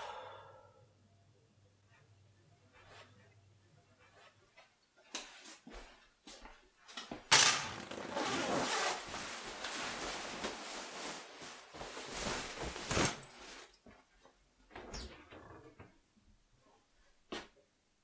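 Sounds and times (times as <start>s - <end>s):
rustling and handling noise: 3.8s - 14.4s.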